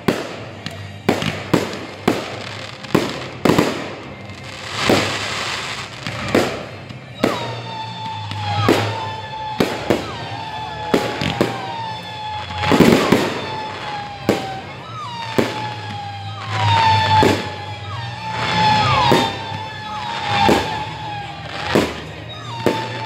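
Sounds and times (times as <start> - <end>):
crackling firework bangs: 0.0 - 23.0
firework rockets bursting: 0.0 - 23.0
high whistling tone: 7.1 - 23.0.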